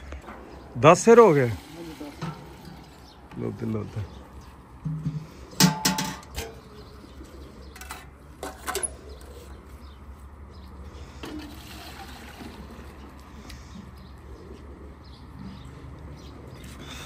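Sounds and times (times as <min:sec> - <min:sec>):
pigeons cooing: 0:00.0 - 0:17.0
metal milk cans clanking: 0:01.8 - 0:03.2, 0:04.8 - 0:06.7, 0:07.7 - 0:09.0.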